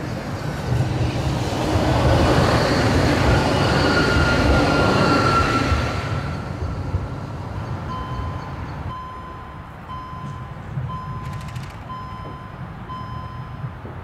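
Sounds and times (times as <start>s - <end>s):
tram wheels squealing: 0.0s - 13.6s
low traffic rumble: 0.0s - 14.0s
electronic warning beeps: 7.7s - 13.7s.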